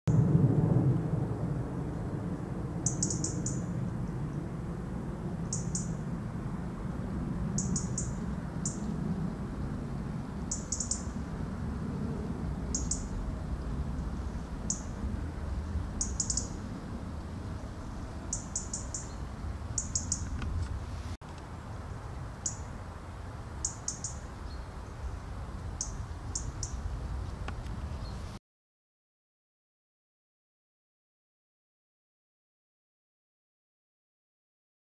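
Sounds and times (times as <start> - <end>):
low background rumble: 0.1 - 23.6
robin alarm calls: 2.8 - 3.7, 5.4 - 6.0, 7.6 - 8.9, 10.5 - 11.2, 12.7 - 13.2, 14.7 - 15.0, 16.0 - 16.6, 18.3 - 20.4, 23.6 - 24.7, 25.8 - 26.8.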